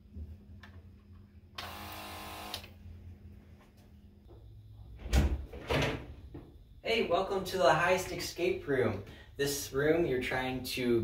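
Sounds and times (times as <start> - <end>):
electric pump motor buzzing: 1.6 - 2.7.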